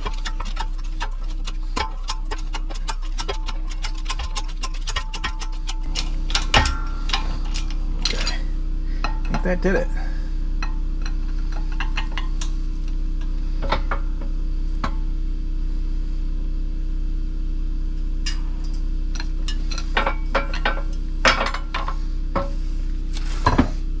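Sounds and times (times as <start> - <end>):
metallic clinks and knocks: 0.0 - 9.6, 18.3 - 22.6
steady low hum: 0.0 - 24.0.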